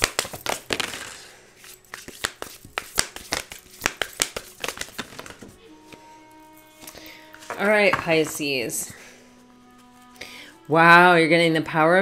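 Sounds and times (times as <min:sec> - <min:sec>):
cards shuffled and snapped: 0:00.0 - 0:05.6.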